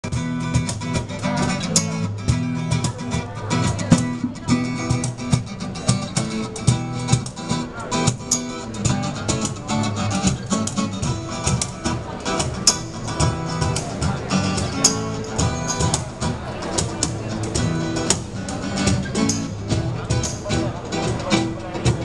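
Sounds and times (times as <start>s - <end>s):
acoustic guitar: 0.0s - 22.0s
cajon struck by hand: 0.0s - 22.0s.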